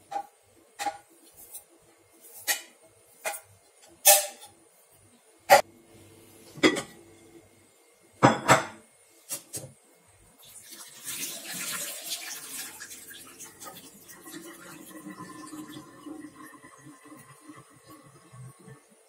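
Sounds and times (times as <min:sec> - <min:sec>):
water pouring into steel sink: 0:10.4 - 0:19.0.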